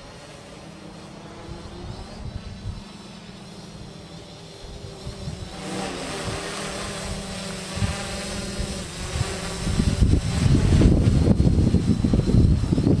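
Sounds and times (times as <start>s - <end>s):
drone propellers buzzing: 0.0s - 13.0s
wind rumbling on microphone: 1.4s - 3.0s, 4.6s - 13.0s.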